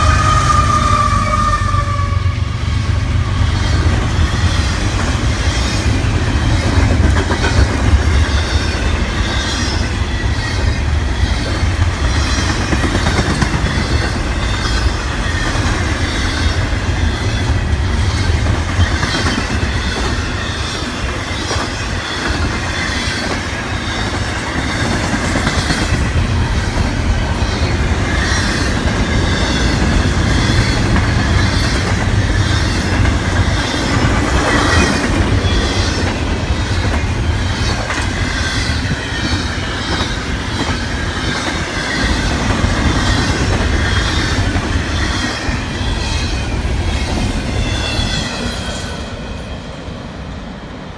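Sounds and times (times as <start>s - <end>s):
freight train rolling rumble: 0.0s - 50.9s.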